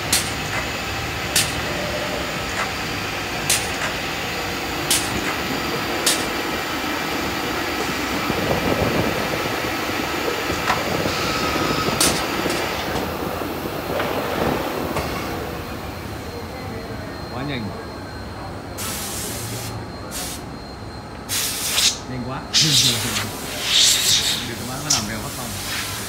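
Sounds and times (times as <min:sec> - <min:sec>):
drilling units clicking: 0:00.0 - 0:08.0
drilling machine spindles whirring: 0:00.0 - 0:15.0.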